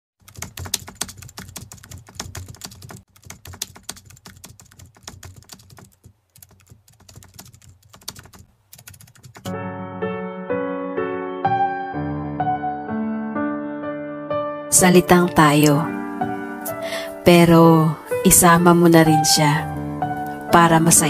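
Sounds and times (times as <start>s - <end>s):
keyboard typing: 0.2s - 9.5s
soft piano music: 9.4s - 21.0s.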